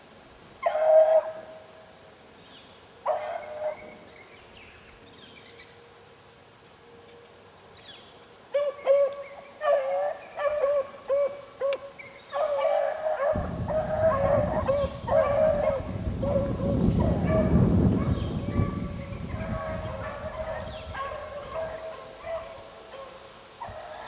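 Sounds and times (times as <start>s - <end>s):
hounds baying: 0.6s - 1.6s, 3.0s - 4.1s, 8.5s - 24.0s
low rumble on microphone: 13.3s - 21.5s.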